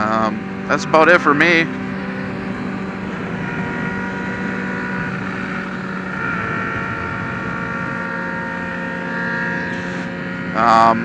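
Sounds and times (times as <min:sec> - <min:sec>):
sport bike engines cruising: 0:00.0 - 0:11.0.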